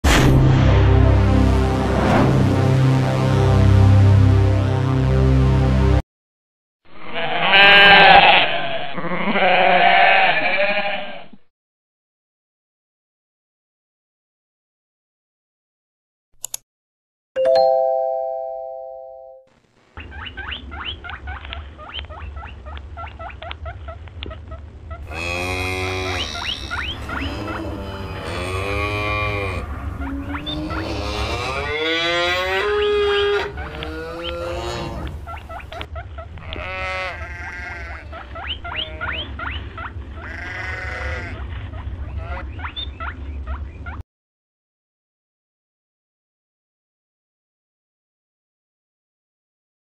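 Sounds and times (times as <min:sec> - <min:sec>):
low hum: 0:00.0 - 0:06.0, 0:21.4 - 0:36.6
farm animal wavering cries: 0:07.0 - 0:11.3, 0:20.0 - 0:44.0
notification chime: 0:17.4 - 0:19.5.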